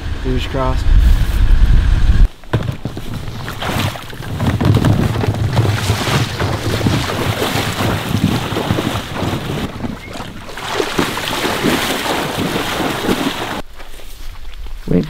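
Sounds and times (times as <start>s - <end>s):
footsteps wading through water: 2.3s - 14.1s.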